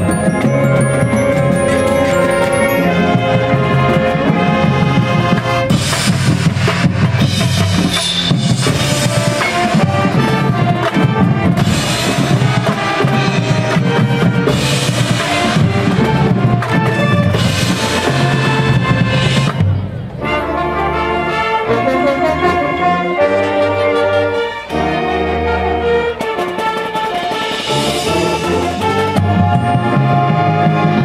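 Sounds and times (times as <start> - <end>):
marimbas and vibraphones: 0.0 - 4.3, 27.7 - 30.8
marching band playing: 0.0 - 31.0.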